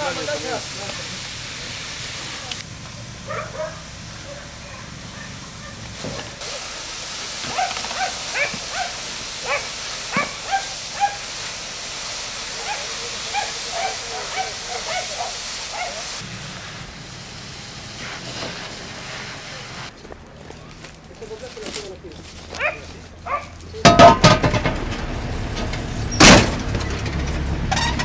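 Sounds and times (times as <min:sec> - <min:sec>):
water hissing on a fire: 0:00.0 - 0:20.0
dog barking and yelping: 0:03.3 - 0:03.8, 0:07.5 - 0:11.2, 0:12.6 - 0:16.0, 0:22.6 - 0:23.5.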